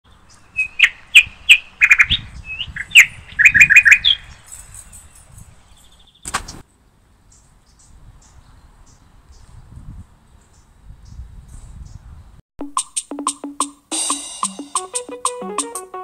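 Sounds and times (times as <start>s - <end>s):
small bird chirping: 0.1s - 6.3s.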